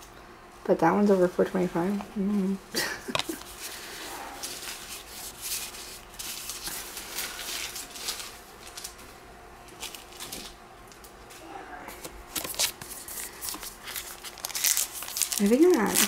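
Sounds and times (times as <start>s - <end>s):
cards rustling and sliding: 12.0s - 16.0s.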